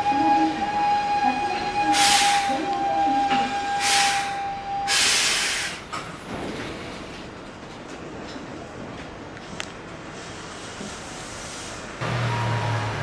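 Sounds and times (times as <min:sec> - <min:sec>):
compressed air hisses: 0:03.8 - 0:05.9, 0:10.1 - 0:12.0.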